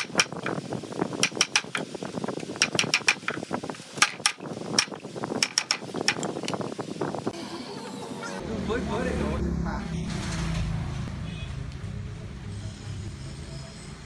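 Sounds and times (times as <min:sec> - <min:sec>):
mallet striking wood chisel: 0:01.2 - 0:01.9, 0:02.6 - 0:03.4, 0:04.0 - 0:06.3.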